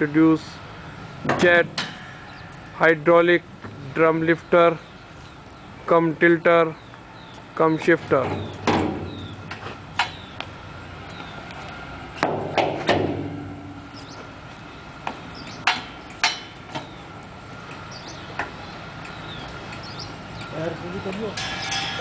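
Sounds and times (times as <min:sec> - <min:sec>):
metal knocks and clanks: 0:01.2 - 0:02.4, 0:08.2 - 0:10.2, 0:12.2 - 0:14.0, 0:15.0 - 0:17.0, 0:21.1 - 0:22.0.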